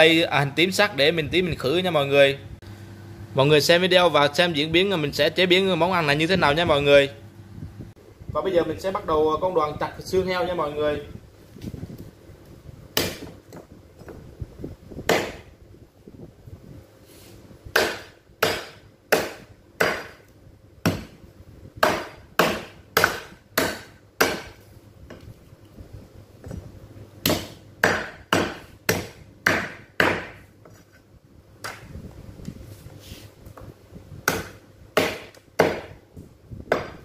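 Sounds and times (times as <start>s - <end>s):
cleaver chopping bones on wood: 13.0s - 13.6s, 15.1s - 15.5s, 17.7s - 21.2s, 21.8s - 24.6s, 27.2s - 30.4s, 34.2s - 36.0s, 36.7s - 37.0s.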